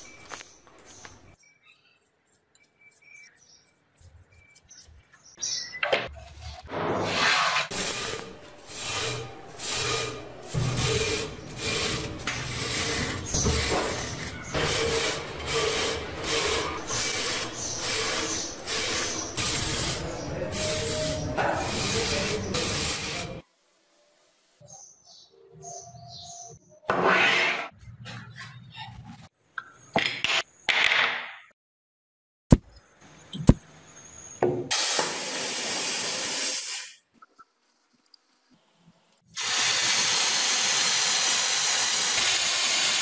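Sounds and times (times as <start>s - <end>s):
wire brush scrubbing metal: 7.1s - 23.4s.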